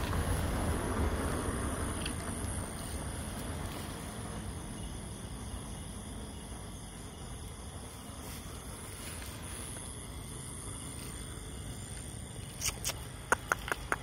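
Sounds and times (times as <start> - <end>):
low rumble: 0.0 - 12.5
crickets chirring: 0.0 - 14.0.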